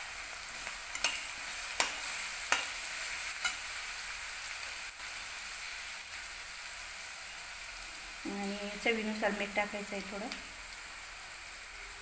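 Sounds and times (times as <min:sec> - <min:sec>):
onion sizzling in hot oil: 0:00.0 - 0:12.0
steel spoon clinking against pan: 0:00.9 - 0:03.7.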